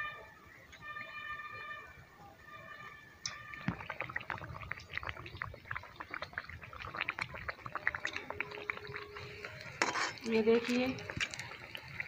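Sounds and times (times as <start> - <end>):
oil crackling and spitting: 3.2 - 12.0.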